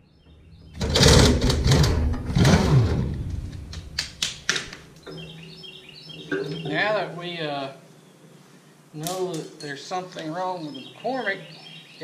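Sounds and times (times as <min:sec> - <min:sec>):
metal parts scraping and squeaking: 0:00.7 - 0:03.1
sharp clicks: 0:03.2 - 0:05.2.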